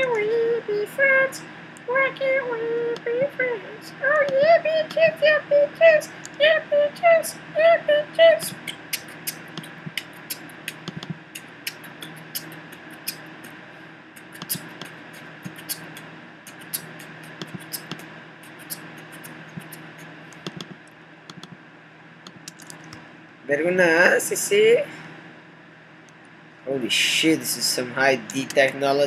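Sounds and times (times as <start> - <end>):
steady low hum: 0.0 - 29.0
computer clicks: 10.6 - 12.6, 20.4 - 21.6.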